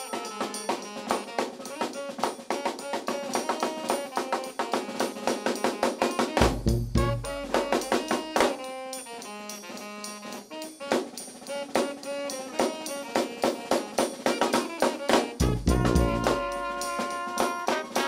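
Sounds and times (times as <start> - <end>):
brass band playing: 0.0 - 18.0
snare and bass drum beat: 0.0 - 18.0
sousaphone bass line: 6.6 - 7.6, 15.4 - 16.5.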